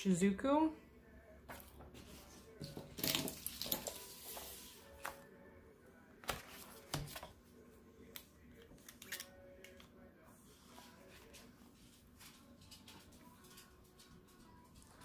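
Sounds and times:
paper pages flipping: 0:06.2 - 0:07.3.

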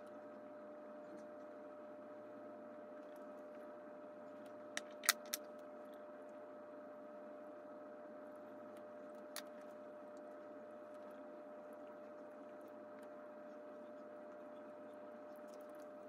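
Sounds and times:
faint steady hum: 0:00.0 - 0:16.0
small sharp clicks: 0:04.8 - 0:05.5.

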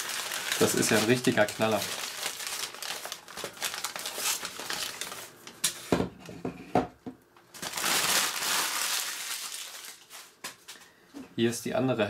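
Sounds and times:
paper crumpling: 0:00.0 - 0:05.8, 0:07.6 - 0:10.8
paper crinkling and rustling: 0:00.0 - 0:05.9, 0:07.6 - 0:10.9.

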